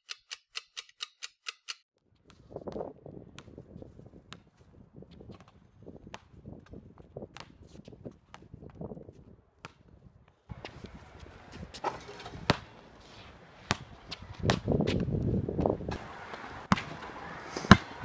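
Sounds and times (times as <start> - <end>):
shoes on concrete court: 2.0 - 18.0
basketball bouncing: 5.2 - 8.8, 11.7 - 12.8, 13.7 - 17.0, 17.7 - 18.0.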